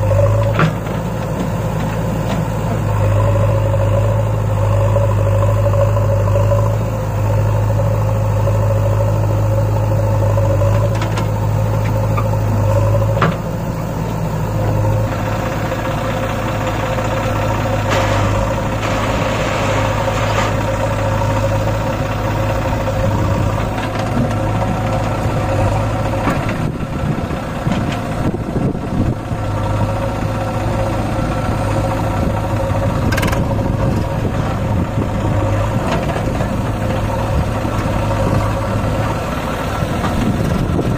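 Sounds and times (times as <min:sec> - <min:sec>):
diesel engines idling: 0:00.0 - 0:40.9
rough rushing noise: 0:16.9 - 0:29.6.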